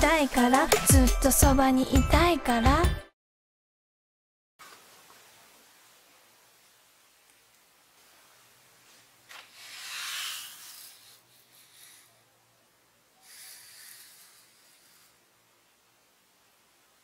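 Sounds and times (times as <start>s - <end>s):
dry rubbing across a surface: 8.8s - 12.3s, 13.2s - 15.3s.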